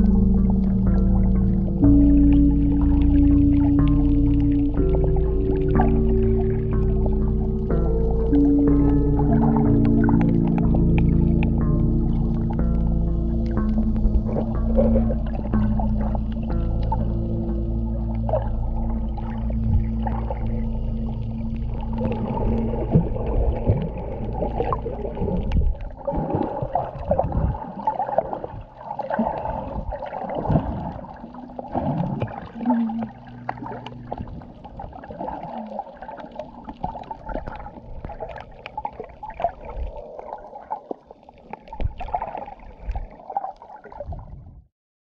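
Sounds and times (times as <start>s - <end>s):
steady low hum: 0.0s - 26.1s, 29.4s - 35.7s
muffled underwater water sloshing: 0.0s - 44.7s.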